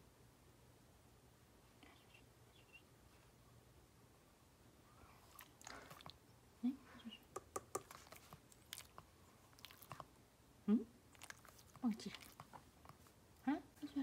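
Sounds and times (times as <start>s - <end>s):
dog licking lips: 5.2s - 6.2s, 7.4s - 10.1s, 11.1s - 13.1s.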